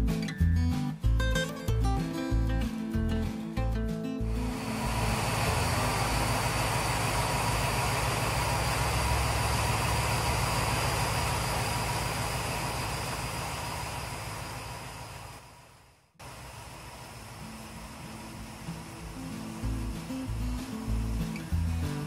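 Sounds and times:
diesel engine rumbling: 0:04.3 - 0:22.0
faint steady whine: 0:04.3 - 0:22.0.

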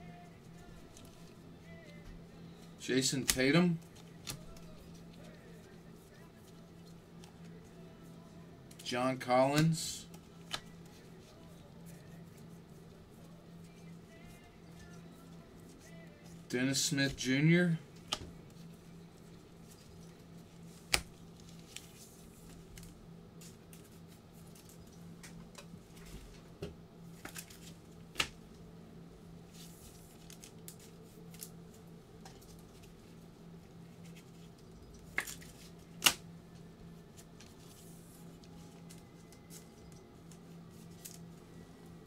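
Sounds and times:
faint low hum: 0:00.0 - 0:42.0
cards rustling and sliding: 0:27.1 - 0:28.4, 0:33.9 - 0:36.2, 0:37.1 - 0:41.3.

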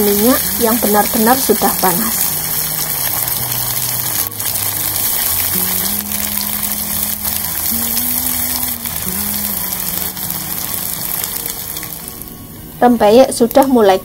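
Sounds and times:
background music with low notes: 0:00.0 - 0:14.0
crackers deep-frying in oil: 0:00.0 - 0:14.0.

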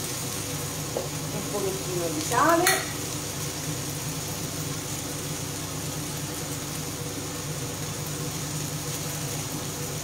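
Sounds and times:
vegetables sizzling in a frying pan: 0:00.0 - 0:10.0.

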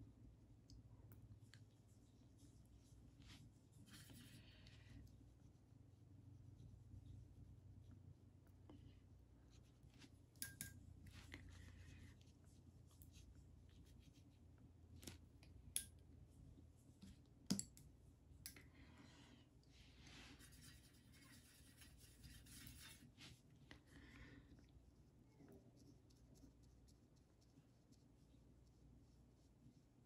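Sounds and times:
brush scratching on paper: 0:01.7 - 0:05.6, 0:20.0 - 0:23.4, 0:24.9 - 0:30.0.

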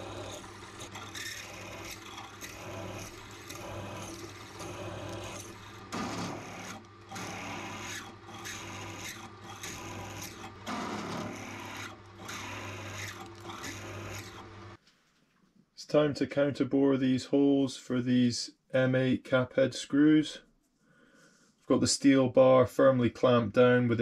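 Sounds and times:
drill motor hum: 0:00.0 - 0:14.8
drill rasping through steel: 0:00.0 - 0:14.8.

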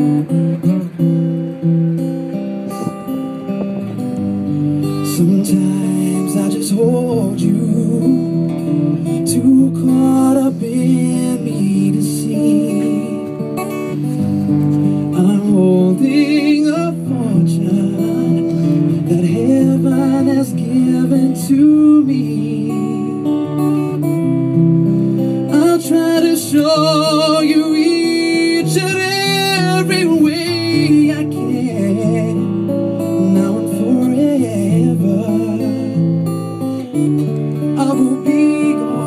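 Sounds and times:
acoustic guitar strumming: 0:00.0 - 0:39.0
man singing: 0:04.9 - 0:13.4, 0:15.1 - 0:24.1, 0:25.5 - 0:36.1, 0:37.6 - 0:39.0.

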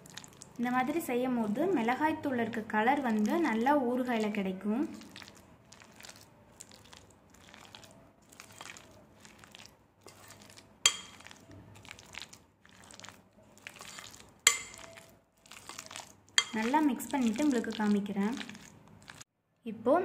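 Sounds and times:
spoon stirring wet food: 0:00.0 - 0:19.2
spoon clinking on glass: 0:10.9 - 0:11.4, 0:14.5 - 0:15.1, 0:16.4 - 0:16.7.

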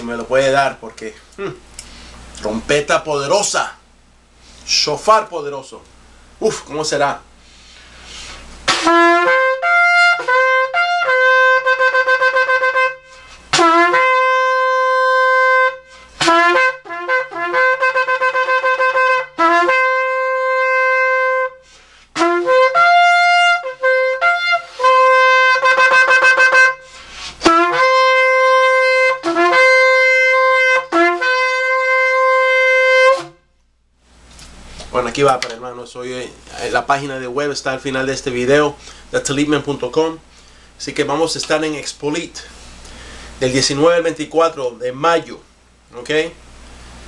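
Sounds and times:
shofar blasts: 0:08.7 - 0:33.5.

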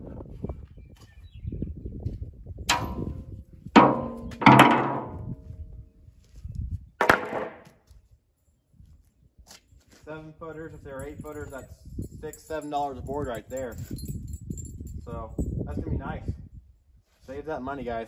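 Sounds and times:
wooden boards knocking: 0:03.8 - 0:05.3, 0:07.0 - 0:07.7.

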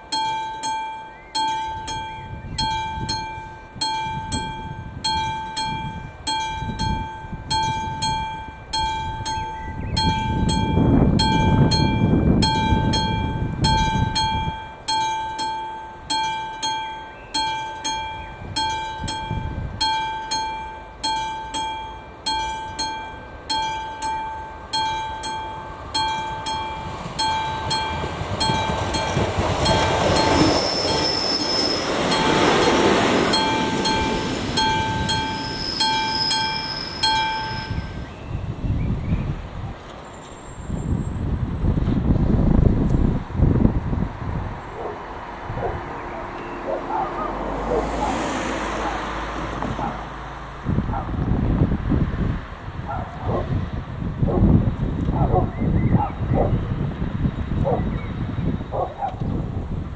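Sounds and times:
level crossing warning bell ringing: 0:00.0 - 0:38.3
train rushing rumble: 0:00.0 - 0:59.9
high wheel squeals: 0:00.1 - 0:39.2, 0:40.0 - 0:42.0.

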